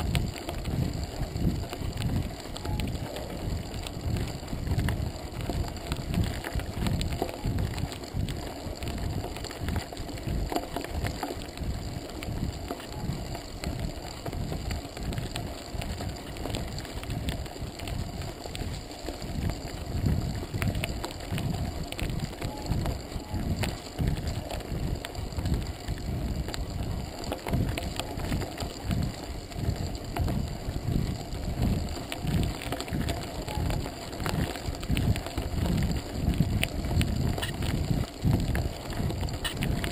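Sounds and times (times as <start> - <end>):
bike and stones clicking: 0.0 - 39.9
wind buffeting microphone: 0.0 - 39.9.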